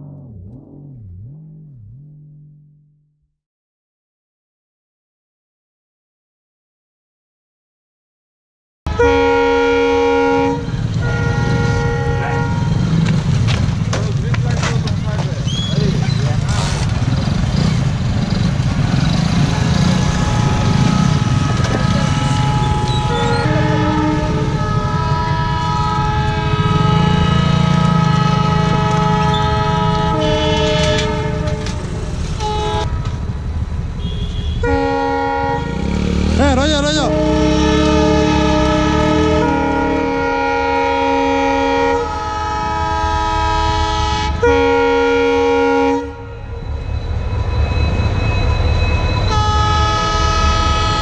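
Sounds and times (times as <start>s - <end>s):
low rumble: 0.0s - 3.4s
train horn blasts: 8.9s - 13.0s, 19.8s - 33.3s, 34.0s - 36.0s, 36.6s - 46.6s, 49.2s - 51.0s.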